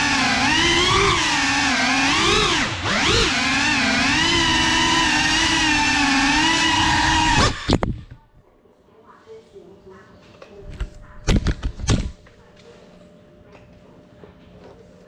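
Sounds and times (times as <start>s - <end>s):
drone motors whining: 0.0s - 8.2s.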